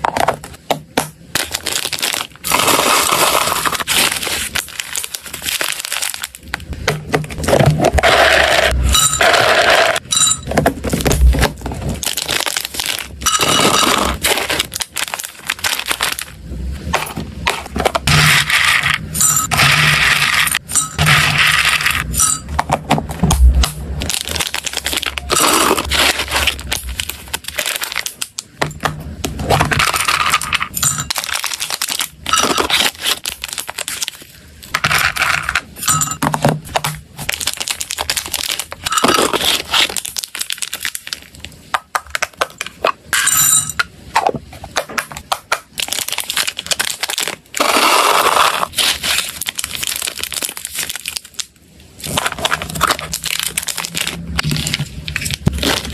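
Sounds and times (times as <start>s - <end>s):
plastic pouch crinkling: 0.0s - 8.4s, 10.8s - 19.1s, 23.9s - 28.6s, 29.6s - 35.7s, 36.7s - 42.8s, 45.2s - 55.9s.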